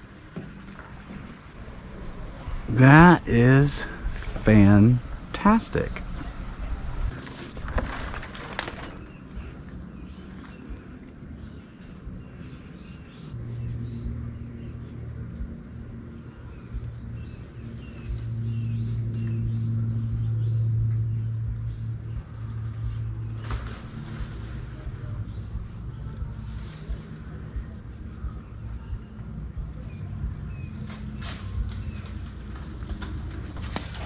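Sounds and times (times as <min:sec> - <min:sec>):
birds chirping: 0:00.0 - 0:34.0
low engine drone: 0:00.0 - 0:34.0
rustling: 0:07.1 - 0:09.6.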